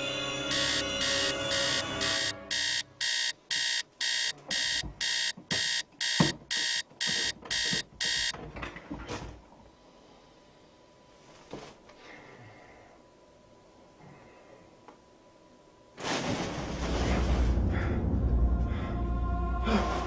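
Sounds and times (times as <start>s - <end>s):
alarm clock beeping: 0.5s - 8.3s.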